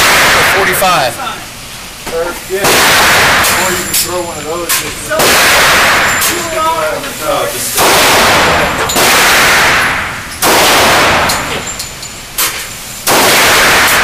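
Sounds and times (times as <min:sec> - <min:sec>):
pistol shots echoing indoors: 0:00.0 - 0:00.8, 0:02.6 - 0:04.0, 0:04.8 - 0:06.5, 0:07.8 - 0:11.7, 0:12.4 - 0:14.0.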